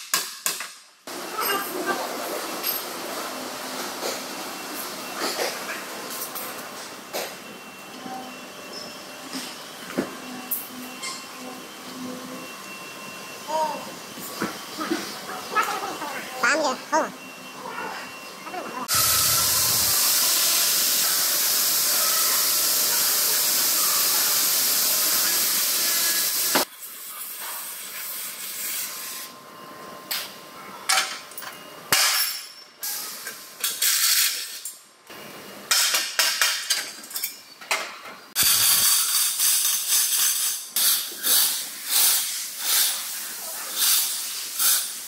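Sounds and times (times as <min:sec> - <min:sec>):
gas cutting torch hissing: 0:18.9 - 0:27.0, 0:38.4 - 0:39.6.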